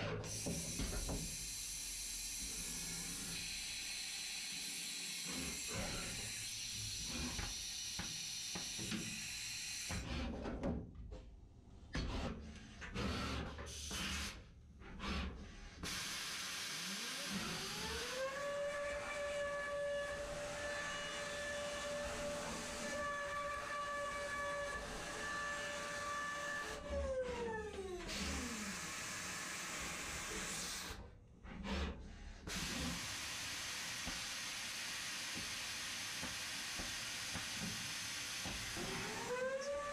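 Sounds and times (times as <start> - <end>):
milling machine hiss and whine: 0.3 - 9.9, 32.5 - 39.3.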